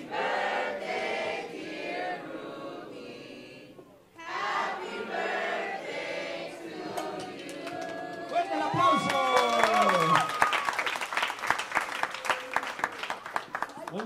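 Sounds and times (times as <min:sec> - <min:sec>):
crowd singing birthday song: 0:00.0 - 0:08.8.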